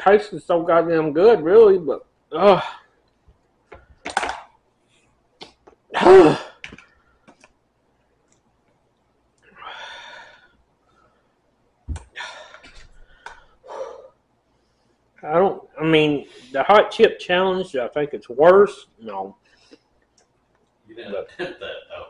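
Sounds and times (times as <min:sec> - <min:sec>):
man coughing harshly: 0:05.9 - 0:06.6.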